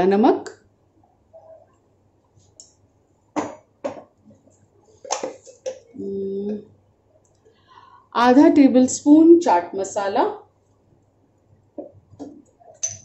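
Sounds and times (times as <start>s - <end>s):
metal spoon clinking glass bowl: 12.7s - 13.0s.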